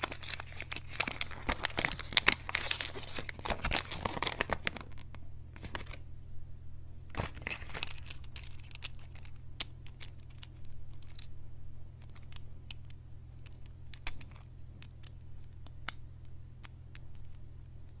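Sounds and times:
paper leaflet rustling: 0:00.0 - 0:06.0
steady low hum: 0:00.0 - 0:18.0.

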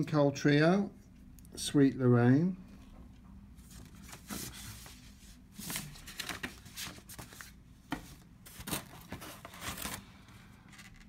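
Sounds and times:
paper sleeves rustling and sliding: 0:03.6 - 0:10.3.

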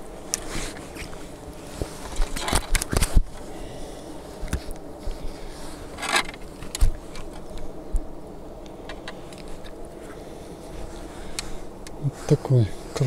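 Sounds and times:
wind noise on microphone: 0:00.0 - 0:03.5
rustling: 0:00.0 - 0:13.0.

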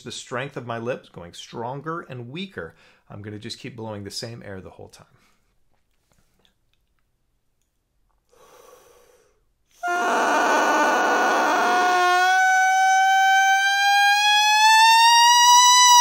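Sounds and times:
breath in: 0:08.3 - 0:09.9.

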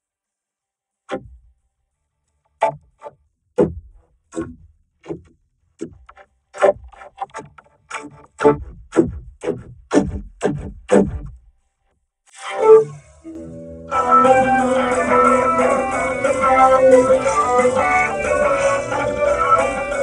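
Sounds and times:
vocoded voice synthesizer melody: 0:12.4 - 0:20.0.

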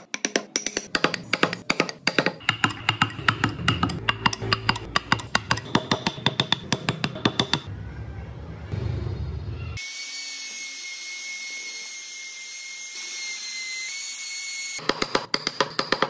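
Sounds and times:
chisel tapping into wood: 0:00.0 - 0:07.7.

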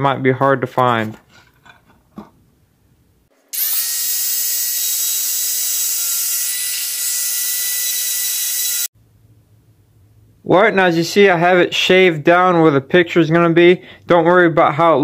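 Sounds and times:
rotary tool whining: 0:03.5 - 0:08.9.

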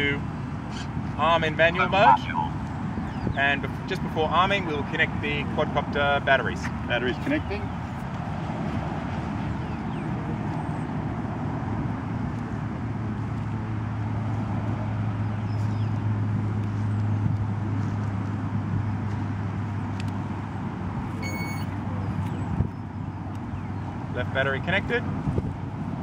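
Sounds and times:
outdoor noise: 0:00.0 - 0:26.0
short electronic beep: 0:21.2 - 0:21.8.

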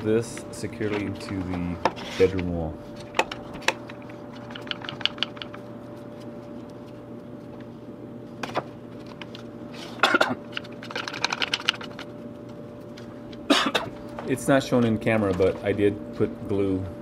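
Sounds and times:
faint steady hum: 0:00.0 - 0:17.0
plywood pieces knocking and clicking: 0:03.1 - 0:05.6, 0:10.5 - 0:12.0.

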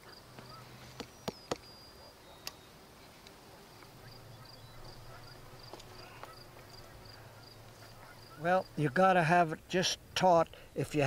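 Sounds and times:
insects chirping: 0:03.7 - 0:08.9.

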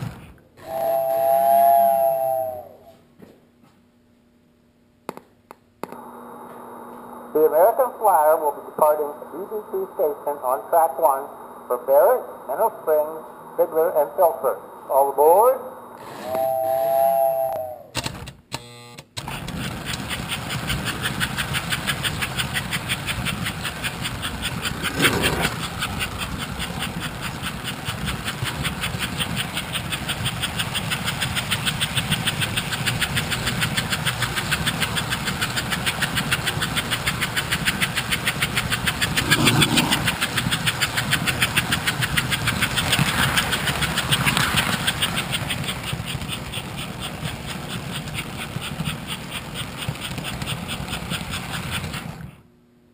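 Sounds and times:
toy train motor and wheels pulsing: 0:00.0 - 0:02.7, 0:16.0 - 0:52.4.

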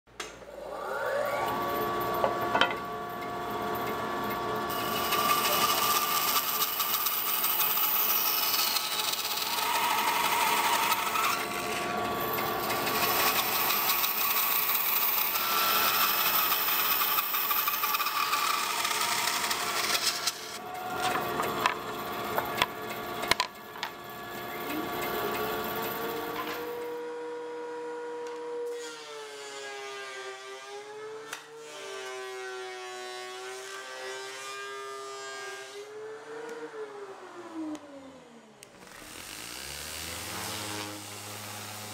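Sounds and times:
machine motor spinning up: 0:00.4 - 0:27.0, 0:36.0 - 0:41.9
bandsaw motor tone: 0:00.5 - 0:27.6, 0:38.8 - 0:41.9
bandsaw cutting wood: 0:00.6 - 0:26.9, 0:38.8 - 0:41.9.

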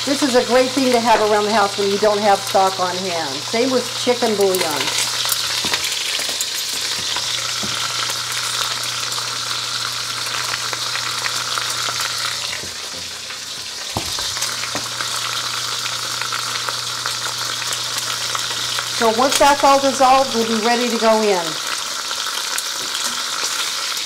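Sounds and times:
meat sizzling in hot oil: 0:00.0 - 0:24.0.

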